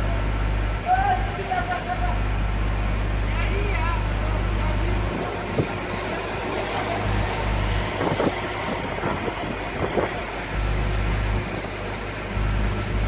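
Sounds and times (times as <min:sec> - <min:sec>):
crane engine humming: 0:00.0 - 0:13.0.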